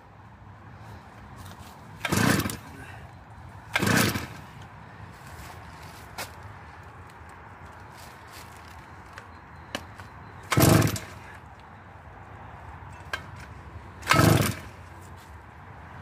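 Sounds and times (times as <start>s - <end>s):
chainsaw recoil starter pulls: 2.0s - 2.9s, 3.7s - 4.6s, 10.5s - 11.4s, 13.1s - 14.8s.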